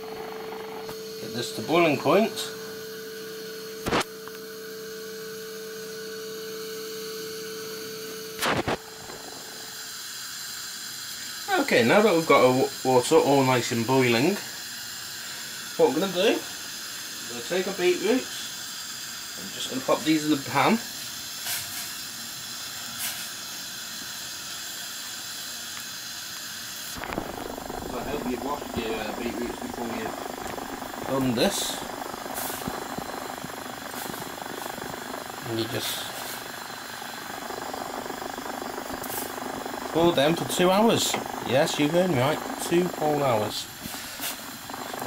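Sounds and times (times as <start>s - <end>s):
water boiling in saucepan: 0.0s - 3.8s, 4.5s - 45.0s
steady electrical hum: 0.0s - 45.0s
faint hiss: 8.4s - 37.2s.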